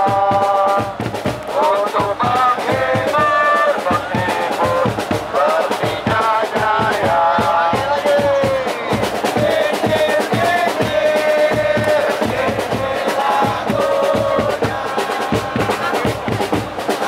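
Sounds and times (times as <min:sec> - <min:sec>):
crowd singing a chant: 0:00.0 - 0:17.0
drums beating: 0:00.0 - 0:17.0.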